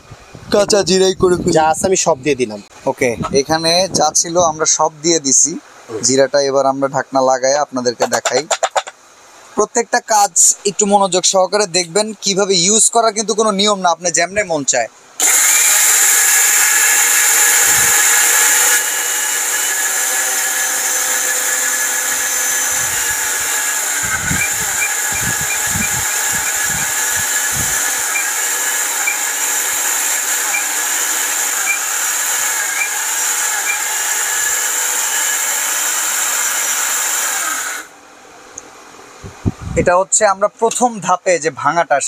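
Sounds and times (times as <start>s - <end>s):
mixer grinder motor whining: 15.2s - 37.9s.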